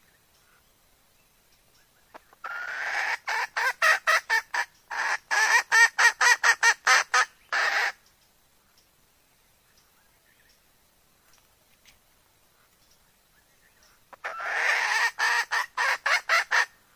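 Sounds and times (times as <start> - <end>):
hen cackling and clucking: 2.1 - 8.0, 14.1 - 16.8.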